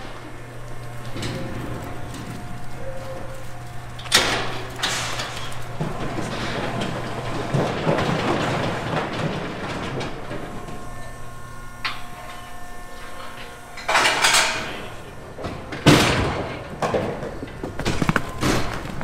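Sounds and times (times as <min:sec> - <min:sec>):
steady low hum: 0:00.0 - 0:19.0
metal gates clanging and rattling: 0:00.4 - 0:19.0.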